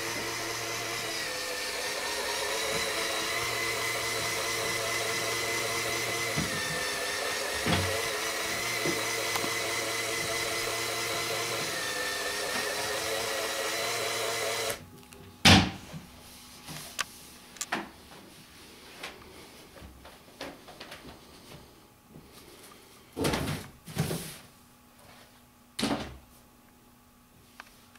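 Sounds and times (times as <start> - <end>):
toy electric motors whining hum: 0.0 - 15.2.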